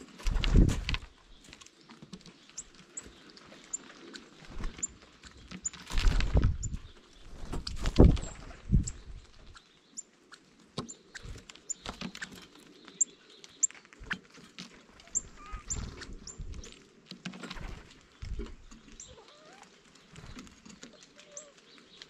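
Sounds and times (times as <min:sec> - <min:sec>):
high bird chirps: 0:15.0 - 0:16.7.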